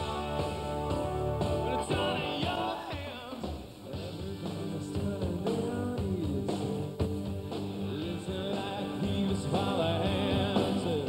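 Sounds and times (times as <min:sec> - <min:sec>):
drums: 0:00.0 - 0:11.0
electric guitar: 0:00.0 - 0:11.0
man singing lead vocal: 0:01.6 - 0:06.9, 0:07.8 - 0:11.0.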